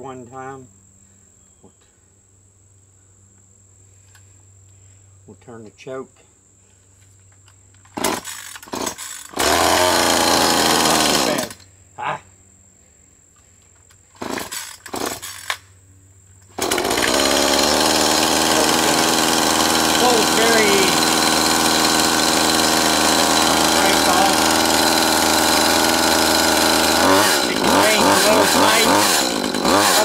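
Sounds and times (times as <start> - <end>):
chainsaw engine running: 7.9 - 11.7, 14.2 - 15.6, 16.4 - 30.0
starter cord pulls: 16.4 - 30.0.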